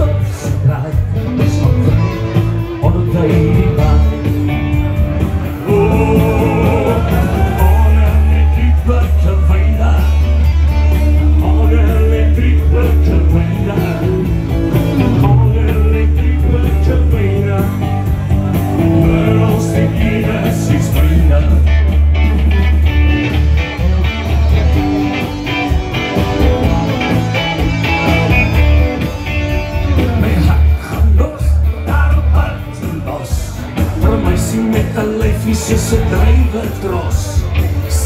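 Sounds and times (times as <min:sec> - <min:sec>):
man singing: 0:00.0 - 0:22.0, 0:29.8 - 0:38.0
bass line: 0:00.0 - 0:38.0
electric guitars: 0:00.0 - 0:38.0.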